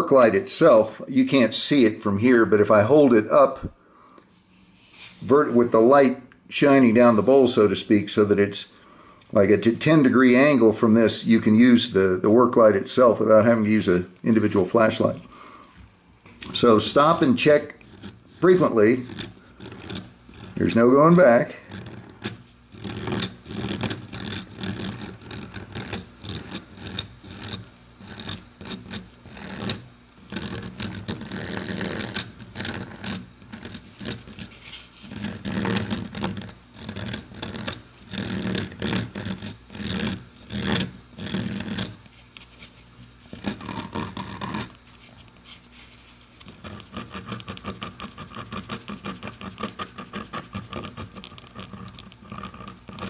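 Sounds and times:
rotary tool grinding wood: 13.0 - 15.6, 16.3 - 53.0.

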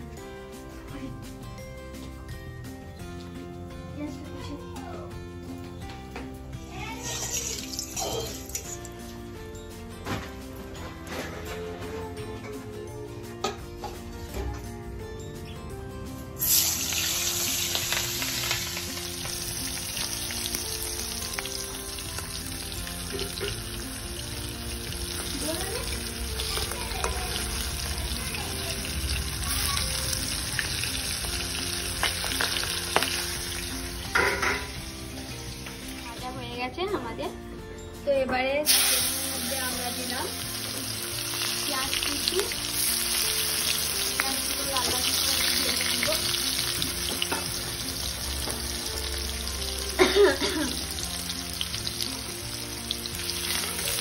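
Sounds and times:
background music: 0.0 - 54.0
fish sizzling in hot oil: 6.8 - 9.2, 16.4 - 36.4, 38.6 - 54.0.

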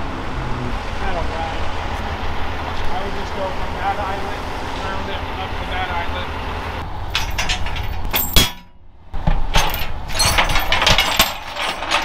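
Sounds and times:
metal hardware clinking on steel deck: 7.1 - 12.0.

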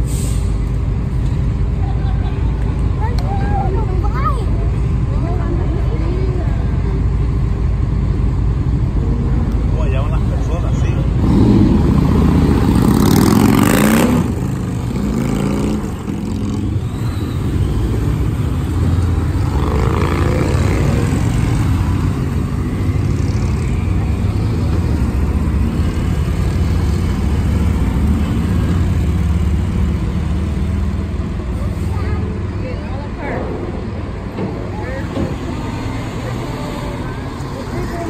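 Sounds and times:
motorcycles accelerating: 8.8 - 31.7.

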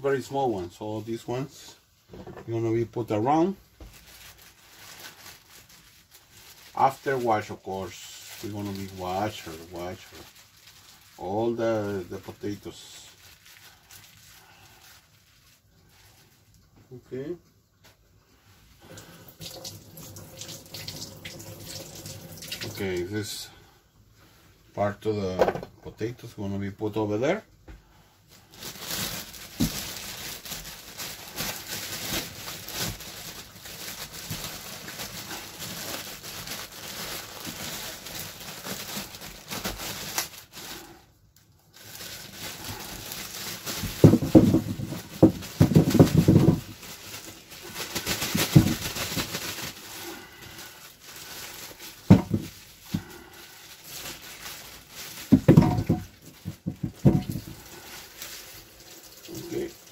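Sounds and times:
potatoes knocking and rustling: 3.7 - 12.7, 28.5 - 40.9, 41.8 - 59.9
tap water running into sink: 19.3 - 22.8.

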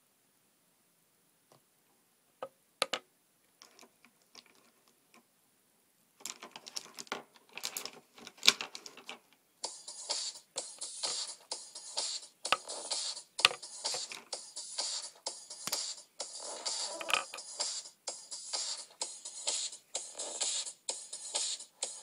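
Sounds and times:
background music: 9.6 - 22.0.

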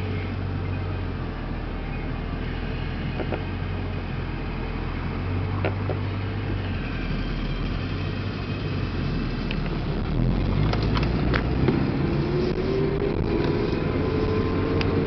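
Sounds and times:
car engine idling: 0.0 - 11.4.

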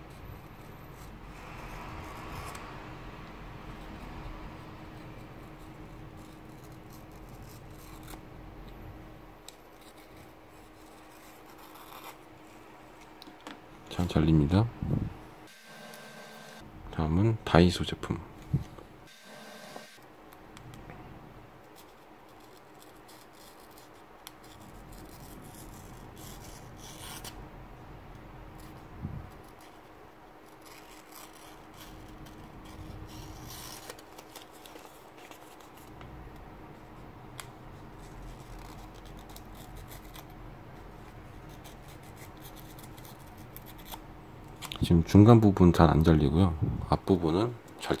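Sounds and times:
blade cutting paper: 9.5 - 12.3, 15.6 - 16.6, 21.7 - 27.4, 28.5 - 36.0, 37.4 - 40.4, 41.0 - 44.0
paper rustling: 28.6 - 36.0.

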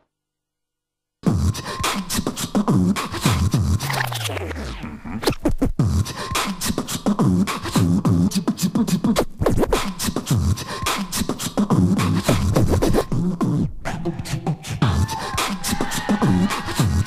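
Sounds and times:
fast percussive background music: 1.3 - 4.4, 9.3 - 13.2, 14.8 - 17.0.

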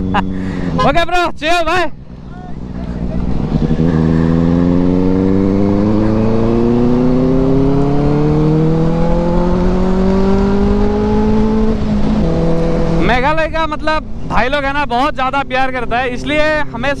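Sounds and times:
motorcycle engine accelerating: 0.0 - 1.1, 1.9 - 13.6
low wind rush: 0.0 - 17.0.

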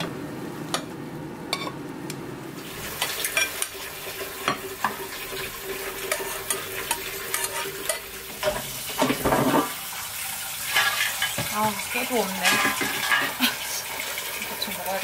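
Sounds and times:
utensil stirring and clicking in pot: 6.0 - 8.6.

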